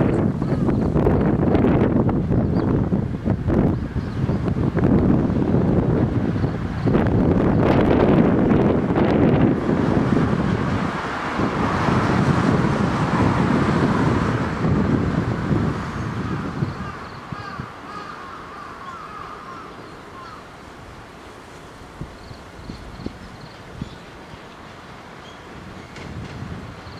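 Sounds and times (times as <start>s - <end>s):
faint railway yard noise: 0.0s - 26.9s
wind rumbling on microphone: 0.0s - 26.9s.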